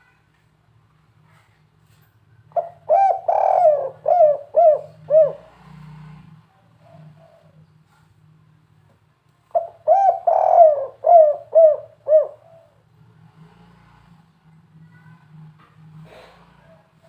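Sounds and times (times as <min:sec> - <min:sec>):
dove cooing: 0:02.6 - 0:06.2, 0:09.5 - 0:12.8.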